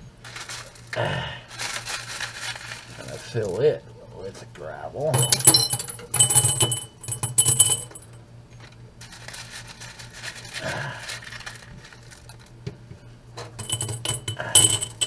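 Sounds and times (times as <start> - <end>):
gravel rattling in a plastic colander: 0.2 - 3.6, 9.0 - 12.6
gravel stones clinking in a jar: 13.6 - 15.0.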